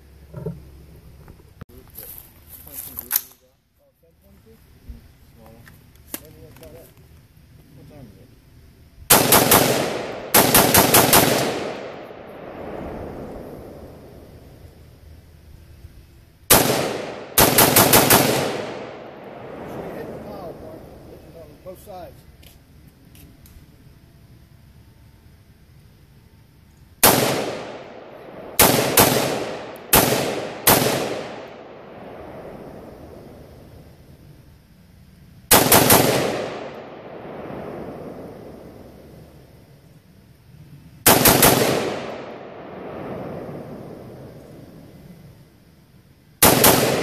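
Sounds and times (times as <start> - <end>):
rifle shots: 9.1 - 14.2, 16.5 - 20.8, 27.0 - 33.4, 35.5 - 39.0, 41.0 - 44.4, 46.4 - 47.0
rolling gunshot echo: 9.1 - 14.4, 16.5 - 21.1, 27.0 - 33.7, 46.4 - 47.0.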